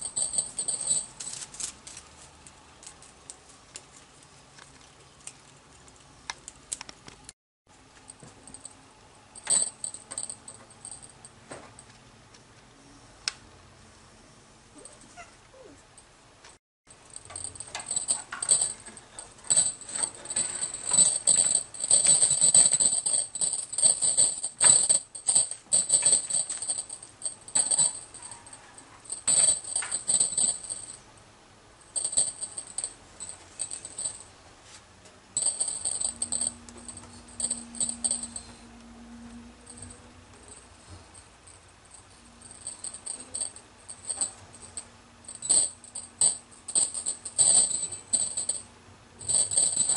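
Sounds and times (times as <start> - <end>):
small bell jingling: 0.0 - 1.4, 17.0 - 31.0, 31.9 - 34.3, 35.4 - 38.6, 39.7 - 49.9.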